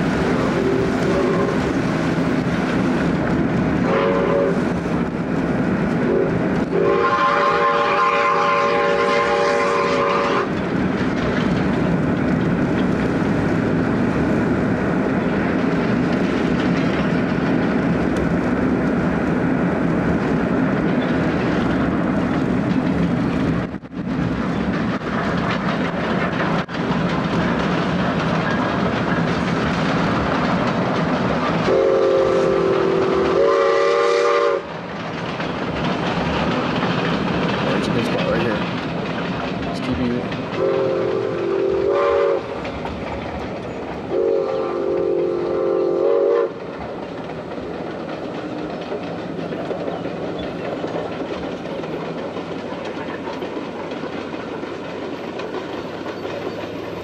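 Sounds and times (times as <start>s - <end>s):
steam train rumble and rail clatter: 0.0s - 57.0s
steam locomotive chime whistle: 3.8s - 4.6s, 6.1s - 10.5s, 31.7s - 34.7s, 40.6s - 42.5s, 44.1s - 46.6s.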